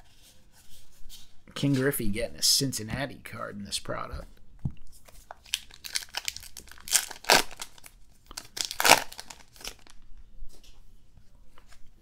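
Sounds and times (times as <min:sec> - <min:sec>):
foil wrapper tearing and crinkling: 0:05.3 - 0:10.0.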